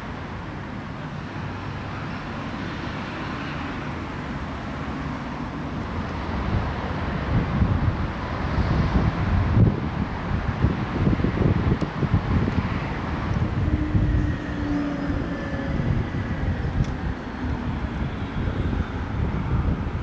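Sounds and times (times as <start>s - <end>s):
distant traffic hum: 0.0s - 20.0s
wind buffeting microphone: 5.8s - 20.0s.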